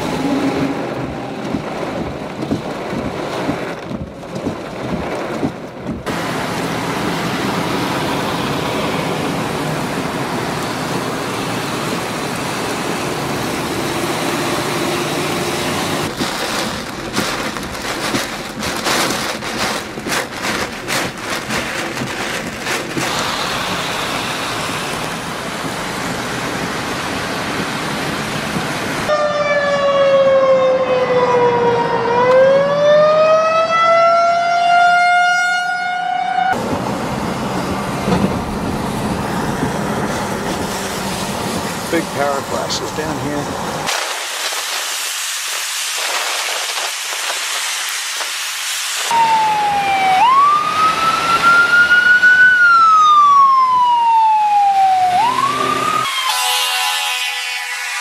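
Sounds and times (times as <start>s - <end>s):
heavy wind-driven rain: 0.0s - 29.2s, 36.6s - 57.2s
road noise: 0.0s - 58.0s
siren wailing: 29.1s - 36.6s, 49.1s - 58.0s.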